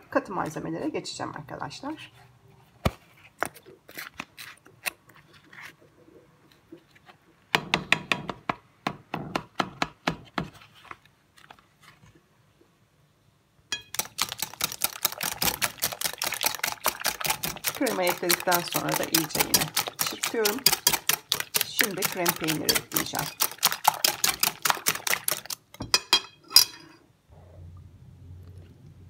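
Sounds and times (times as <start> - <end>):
scattered taps and clicks: 13.8 - 25.6
wire whisk beating against bowl: 13.8 - 26.1.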